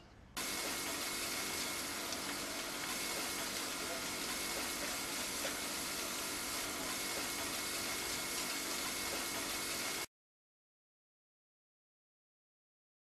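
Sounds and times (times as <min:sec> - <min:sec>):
pressure washer running: 0:00.4 - 0:10.1
water gushing from downspout: 0:00.4 - 0:10.1.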